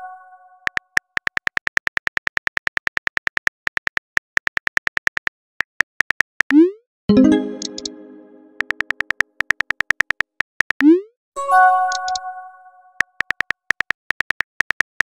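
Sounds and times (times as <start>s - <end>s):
phone keyboard clicks: 8.6s - 10.8s, 11.9s - 12.2s, 13.0s - 15.0s.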